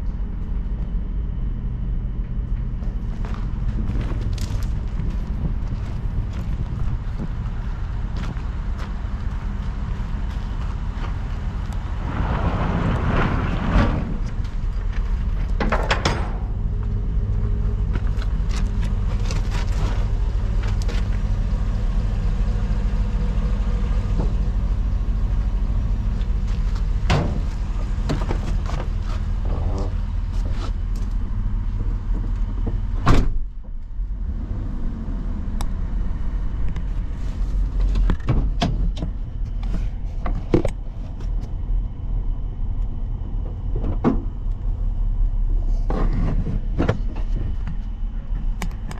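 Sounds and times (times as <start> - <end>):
truck engine idling: 0.0 - 33.0
door slamming shut: 33.0 - 33.5.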